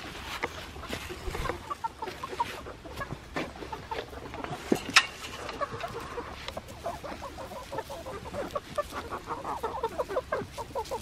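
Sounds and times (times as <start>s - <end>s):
hens clucking: 0.0s - 11.0s
hens pecking: 0.0s - 11.0s.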